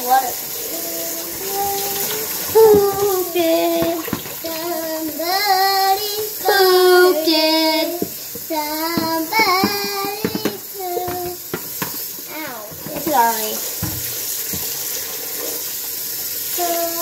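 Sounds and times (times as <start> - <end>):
girl singing: 0.0 - 11.5, 12.3 - 13.1, 16.6 - 17.0.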